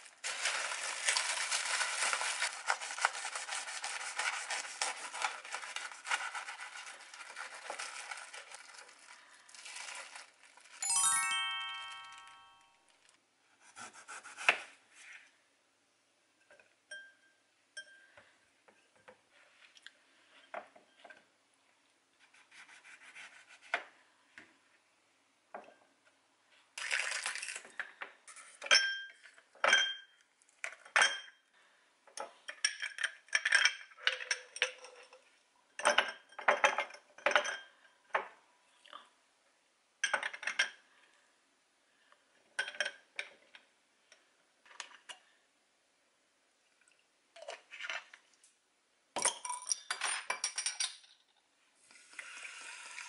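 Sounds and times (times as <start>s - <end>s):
ice clinking in a glass: 10.8s - 12.6s.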